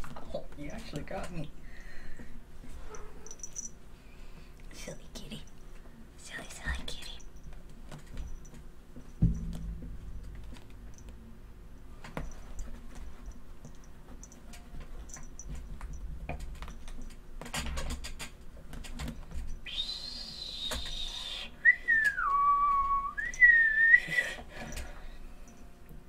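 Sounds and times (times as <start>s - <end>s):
high whistled tone: 19.7s - 24.2s.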